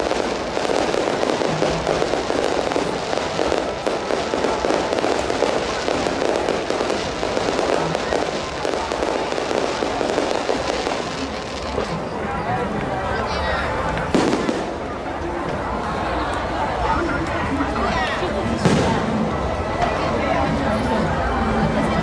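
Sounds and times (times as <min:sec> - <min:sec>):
fireworks crackling and popping: 0:00.0 - 0:12.9, 0:13.8 - 0:15.7, 0:18.5 - 0:19.6.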